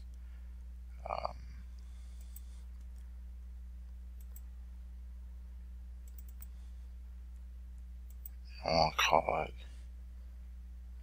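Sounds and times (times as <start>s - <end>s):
low electrical hum: 0.0s - 11.0s
computer mouse clicks: 1.7s - 3.1s, 4.2s - 4.5s, 6.0s - 6.6s, 8.0s - 8.4s.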